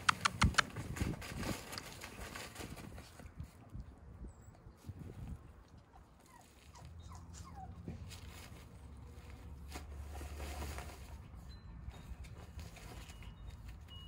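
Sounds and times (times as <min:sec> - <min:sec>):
scuffling and rustling: 0:00.0 - 0:03.7, 0:06.4 - 0:14.0
puppies squeaking: 0:06.3 - 0:07.9.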